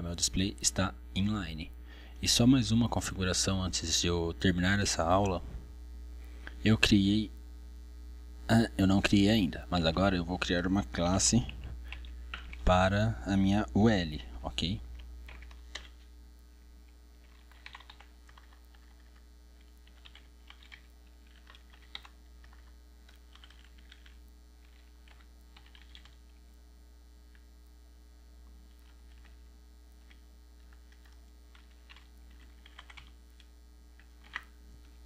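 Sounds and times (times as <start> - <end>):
steady low hum: 0.0 - 35.0
computer keyboard typing: 11.4 - 12.7, 15.3 - 16.0, 17.2 - 26.3, 28.7 - 29.4, 30.0 - 34.5.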